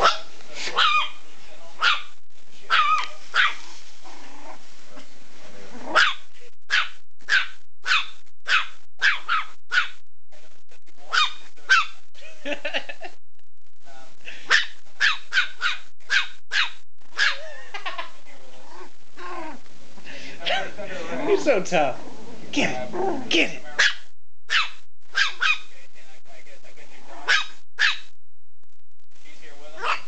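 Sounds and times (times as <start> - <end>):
small dog yapping: 0.0 - 1.2, 2.7 - 3.7, 5.9 - 9.9, 11.1 - 11.9, 14.5 - 17.5, 23.8 - 25.6, 27.2 - 28.0.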